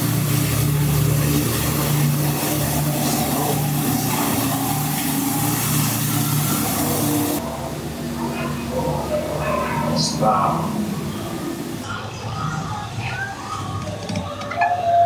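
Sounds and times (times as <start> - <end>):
waterfall rushing: 0.0 - 12.0
low hum: 0.0 - 13.5.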